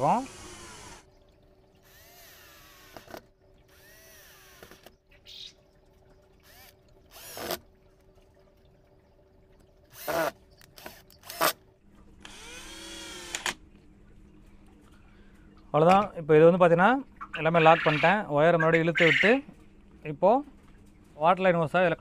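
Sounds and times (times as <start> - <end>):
cordless drill running in bursts: 12.2 - 13.5.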